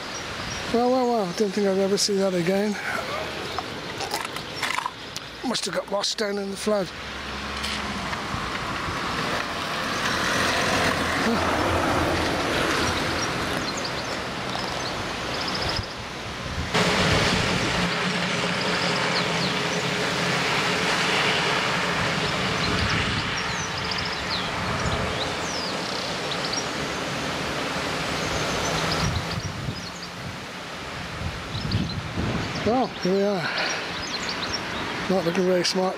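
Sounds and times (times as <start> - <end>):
birds chirping: 0.0 - 7.2, 8.5 - 16.2, 17.7 - 30.5, 31.4 - 35.9
constant rushing noise: 0.0 - 35.9
lorry engine humming: 7.0 - 29.3.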